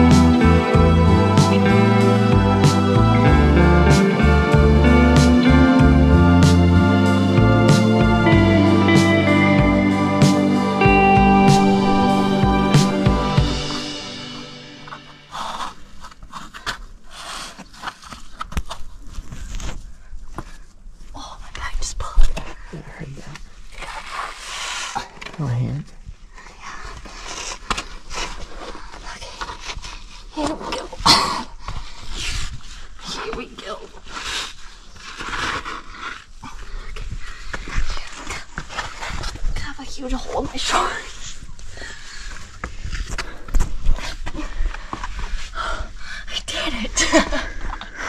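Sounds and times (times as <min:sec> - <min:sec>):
woman laughing: 0:47.0 - 0:47.8.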